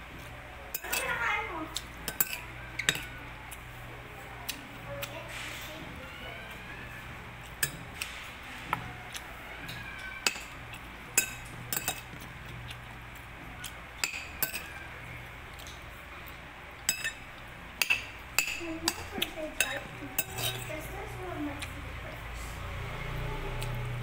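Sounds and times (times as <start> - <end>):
spoon clinking on ceramic plate: 2.1 - 3.1, 10.2 - 10.6, 11.2 - 12.1, 14.0 - 14.8, 16.9 - 17.2, 17.8 - 20.7.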